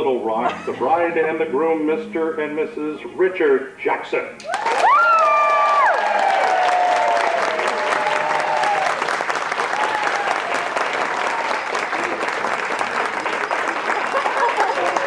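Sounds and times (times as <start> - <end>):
falling held tone: 0.4 - 3.3
crowd applauding: 4.4 - 15.0.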